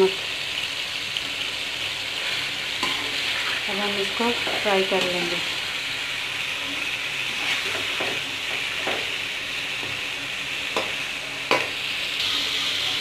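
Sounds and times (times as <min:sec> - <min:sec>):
chicken sizzling in hot oil: 0:00.0 - 0:13.0
metal spoon scraping a pan: 0:02.2 - 0:05.7, 0:07.2 - 0:08.8.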